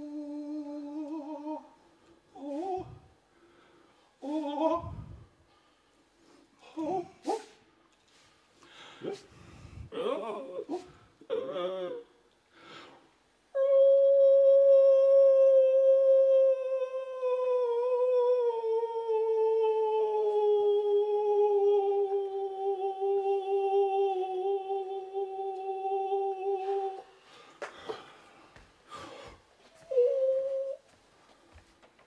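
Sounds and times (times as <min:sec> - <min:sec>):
person humming a long note: 0:00.0 - 0:01.8, 0:02.4 - 0:03.1, 0:13.6 - 0:27.1, 0:29.8 - 0:30.8.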